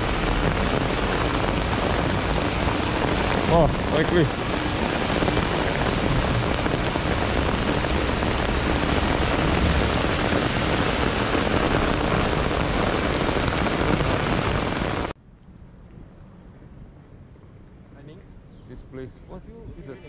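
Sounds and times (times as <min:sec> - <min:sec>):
heavy rain on street: 0:00.0 - 0:15.2.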